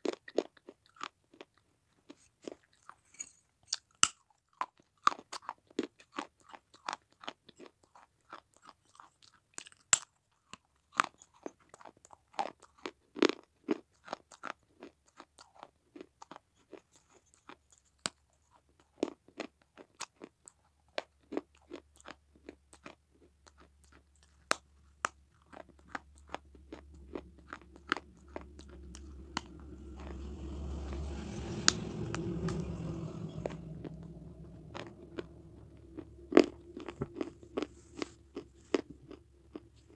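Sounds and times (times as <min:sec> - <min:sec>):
clay saucer crunching being chewed: 0:00.0 - 0:30.4, 0:34.1 - 0:39.9
low droning noise: 0:25.3 - 0:39.9.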